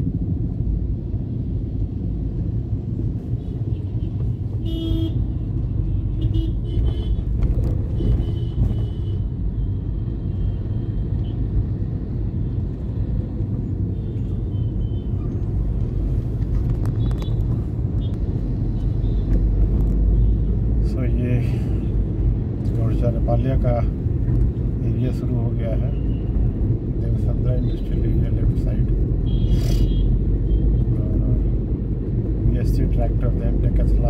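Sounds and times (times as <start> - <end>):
low rumble of road traffic: 0.0 - 34.0
vehicle horns tooting: 3.8 - 7.3, 7.9 - 9.3.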